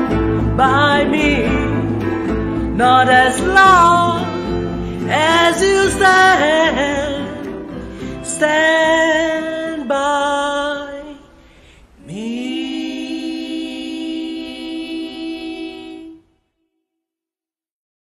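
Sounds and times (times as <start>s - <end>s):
group of voices singing: 0.0s - 7.5s, 12.0s - 16.3s.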